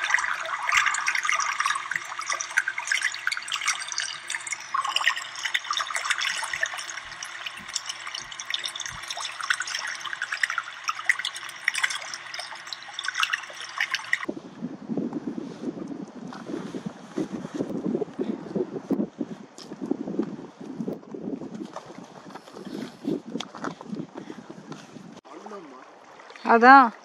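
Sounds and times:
lake water lapping and splashing: 0:00.0 - 0:14.3, 0:21.4 - 0:27.0.

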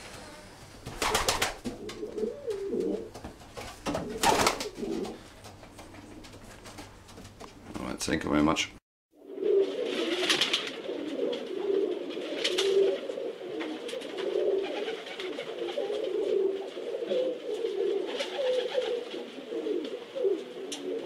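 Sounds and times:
pigeons cooing: 0:00.0 - 0:03.2, 0:04.0 - 0:05.3, 0:09.2 - 0:21.0.

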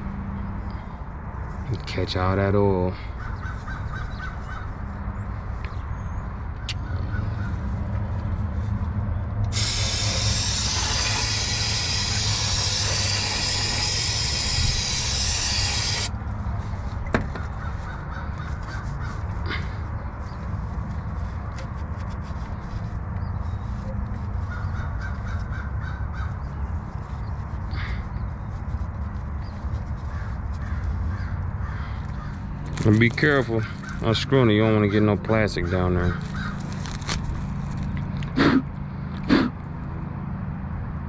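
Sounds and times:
crows cawing: 0:03.1 - 0:04.7, 0:24.5 - 0:26.4, 0:30.1 - 0:32.4, 0:35.7 - 0:36.7
aerosol spray hissing: 0:09.5 - 0:16.1.

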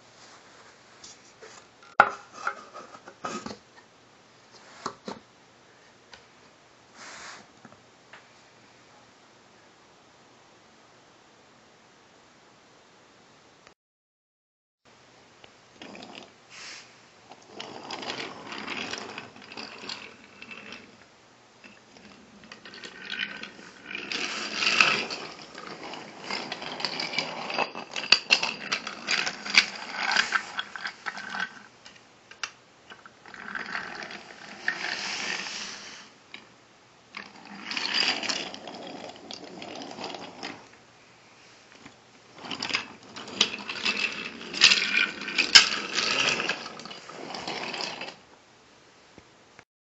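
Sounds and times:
toy track pieces clattering: 0:17.6 - 0:21.0, 0:21.7 - 0:35.6, 0:37.2 - 0:40.6, 0:42.4 - 0:48.2
toy train motor whirring: 0:22.0 - 0:31.7, 0:32.9 - 0:36.4, 0:37.2 - 0:40.6, 0:42.4 - 0:48.2.

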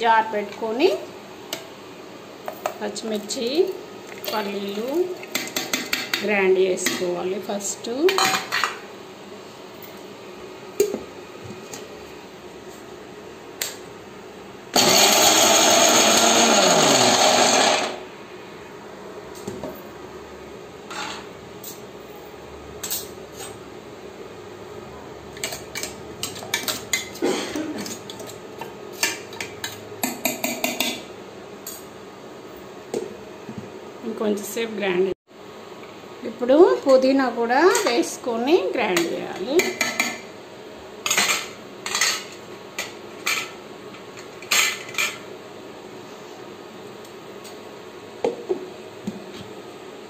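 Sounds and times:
mixer grinder grinding: 0:14.8 - 0:18.1.

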